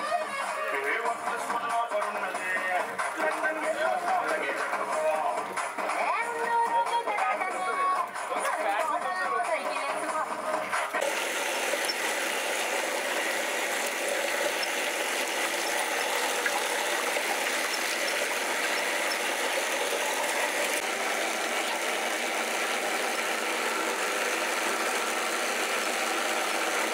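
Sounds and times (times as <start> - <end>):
electric wet grinder running: 10.6 - 26.9.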